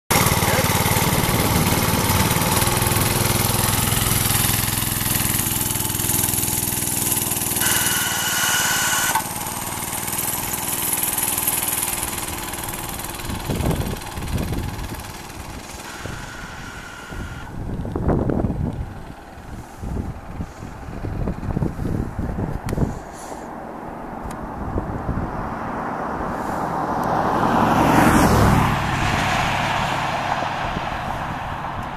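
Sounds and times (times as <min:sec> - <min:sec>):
small engine running: 0:00.1 - 0:22.2
wind buffeting microphone: 0:12.9 - 0:23.1, 0:24.1 - 0:31.9.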